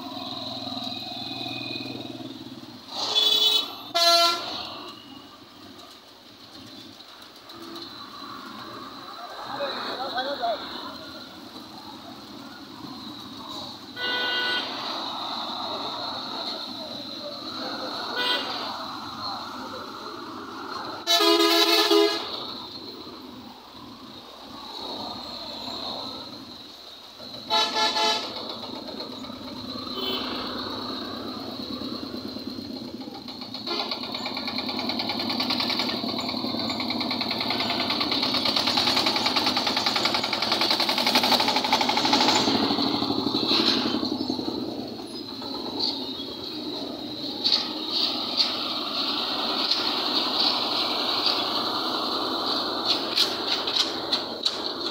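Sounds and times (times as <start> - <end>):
road traffic passing: 0.0 - 54.9
vehicle horn blasts: 3.1 - 4.6, 14.0 - 14.7, 18.2 - 18.6, 21.0 - 22.3, 27.5 - 28.3.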